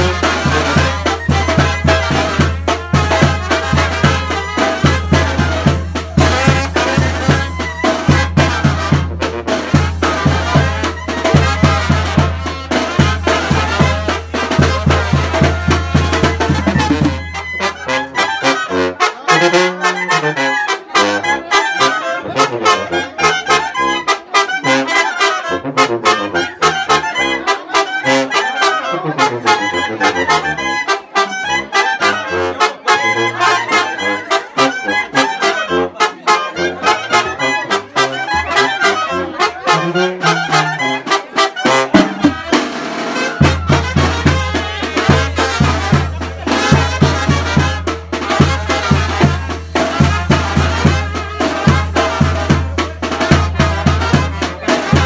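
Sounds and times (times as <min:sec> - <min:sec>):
brass band playing dance tune: 0:00.0 - 0:55.0.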